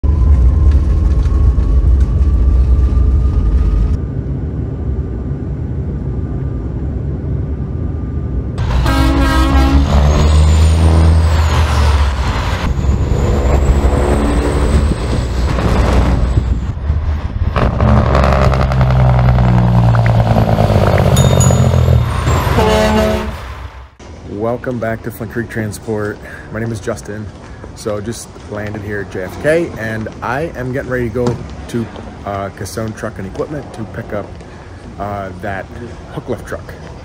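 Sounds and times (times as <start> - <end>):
jet airliner rumbling: 0.0 - 24.0
big-rig diesel engines rumbling: 0.0 - 37.0
truck air-horn blasts: 8.6 - 10.9, 21.1 - 23.7.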